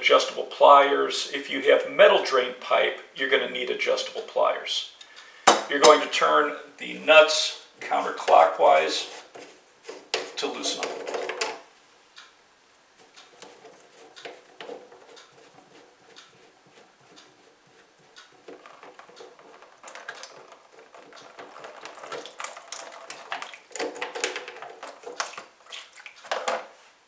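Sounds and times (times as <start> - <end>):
plastic scraping and clicking: 7.8 - 11.6, 13.0 - 26.7.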